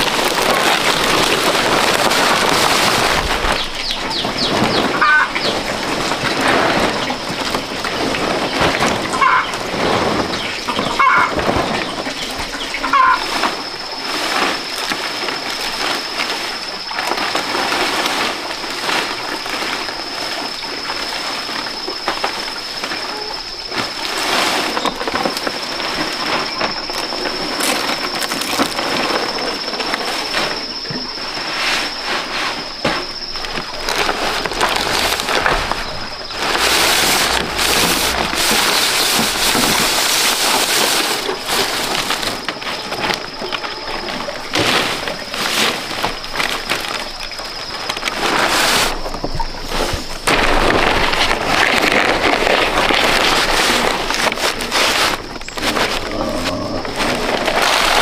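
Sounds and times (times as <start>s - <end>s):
palm leaves rustling: 0.0s - 58.0s
bird chirps: 3.5s - 5.7s
high-pitched whine: 24.8s - 45.3s.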